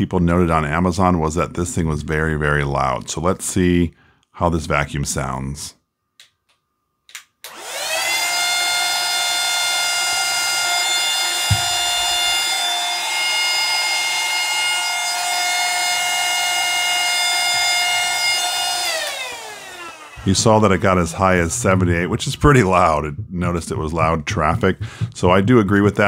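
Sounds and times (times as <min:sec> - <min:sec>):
vacuum motor whining: 0:07.5 - 0:20.9
thump: 0:11.4 - 0:12.2.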